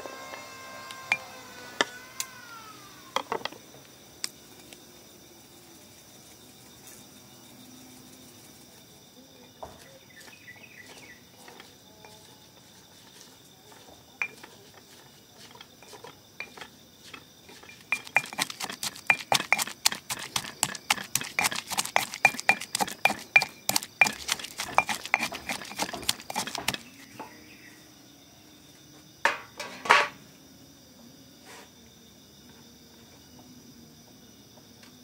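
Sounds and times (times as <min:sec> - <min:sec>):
stone pestle pounding in mortar: 0:17.6 - 0:27.0.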